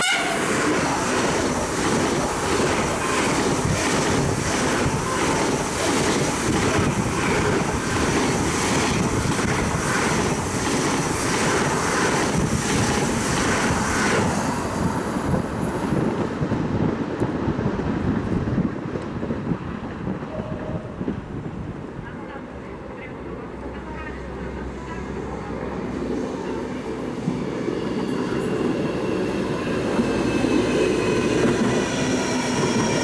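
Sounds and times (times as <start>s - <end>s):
high-speed train passing: 0.0s - 33.0s
wind on microphone: 0.7s - 22.2s.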